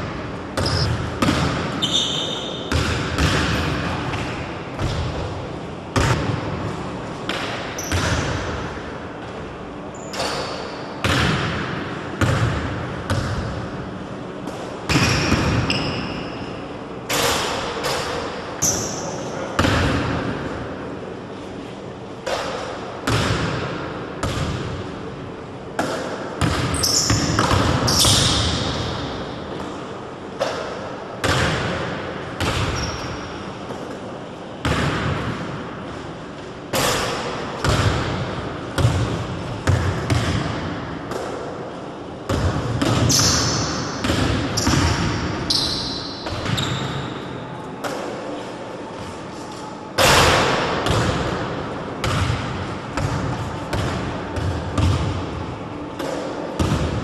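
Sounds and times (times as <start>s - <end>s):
shoe squeaks: 0.6s - 1.0s, 1.8s - 2.7s, 9.9s - 10.8s, 15.1s - 16.6s, 18.6s - 19.3s, 26.7s - 27.3s, 32.7s - 33.1s, 45.5s - 47.4s
basketball bouncing on wooden floor: 0.6s - 2.1s, 52.0s - 55.1s.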